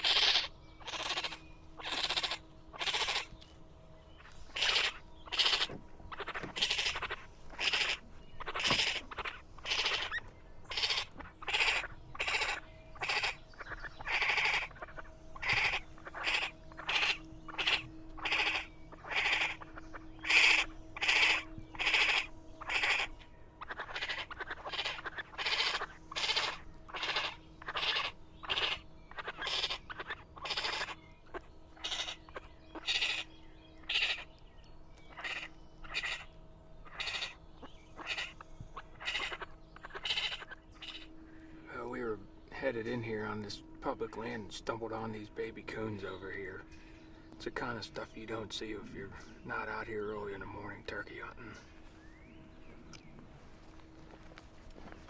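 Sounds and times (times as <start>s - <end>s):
baby raccoons crying: 0.0s - 3.4s, 4.1s - 34.4s, 35.0s - 41.2s.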